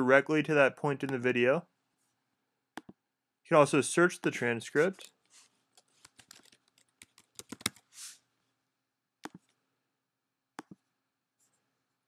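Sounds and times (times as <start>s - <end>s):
keyboard typing: 5.8s - 7.9s, 9.2s - 9.5s, 10.6s - 10.8s.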